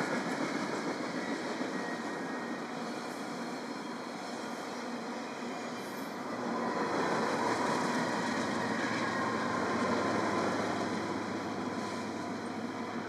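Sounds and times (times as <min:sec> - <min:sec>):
train wheels rolling on rail: 0:00.0 - 0:13.0.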